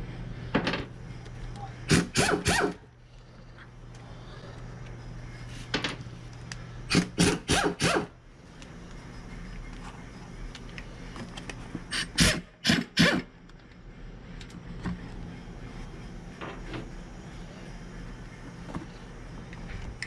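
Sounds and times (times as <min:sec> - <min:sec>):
faint low hum: 0:00.0 - 0:07.1.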